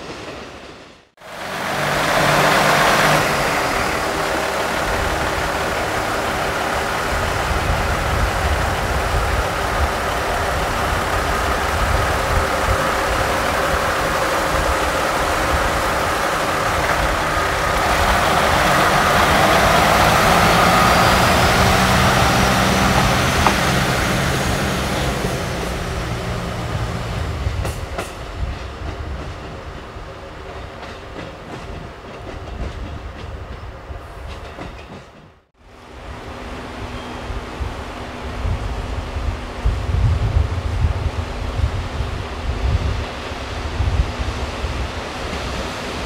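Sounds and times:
diesel train passing: 0:00.0 - 0:46.0
wheels clicking over rail joints: 0:01.6 - 0:26.4.

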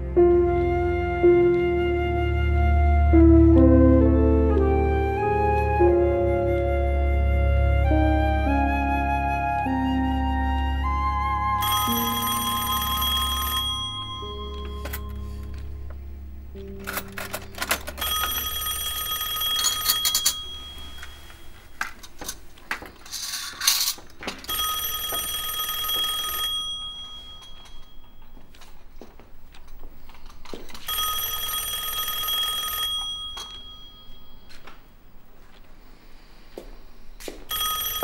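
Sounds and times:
telephone ringing: 0:11.6 - 0:15.6, 0:16.5 - 0:22.1, 0:24.5 - 0:28.7, 0:30.5 - 0:34.8, 0:37.5 - 0:38.0.

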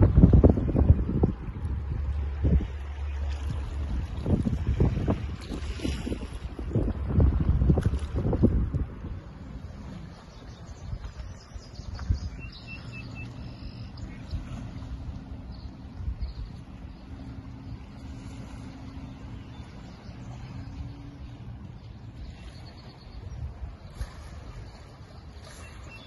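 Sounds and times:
wind buffeting microphone: 0:00.0 - 0:26.0
small waves lapping on rocks: 0:01.4 - 0:26.0
bird chirps: 0:11.3 - 0:14.4.

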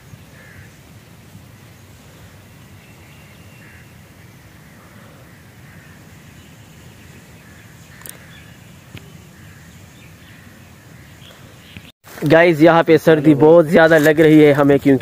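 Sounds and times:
faint bird calls: 0:00.0 - 0:01.0, 0:01.7 - 0:11.9.

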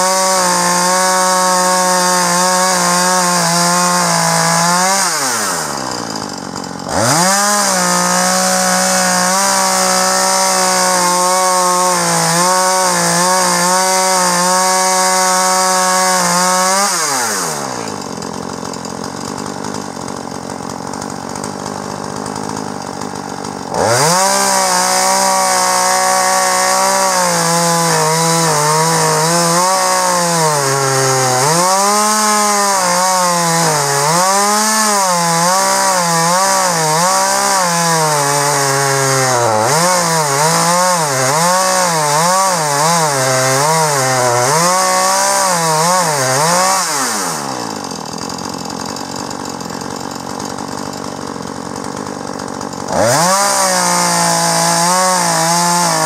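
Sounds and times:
chainsaw cutting log: 0:00.0 - 0:56.0.

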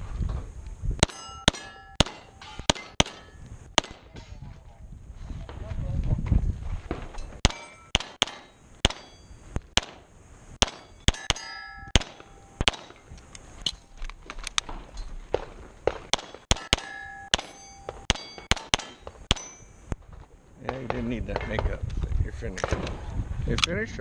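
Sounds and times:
rapid pistol shots: 0:01.0 - 0:04.2, 0:07.4 - 0:13.0, 0:15.3 - 0:19.6
steel targets clanging: 0:01.0 - 0:04.4, 0:07.1 - 0:10.0, 0:10.6 - 0:14.0, 0:16.1 - 0:19.9.

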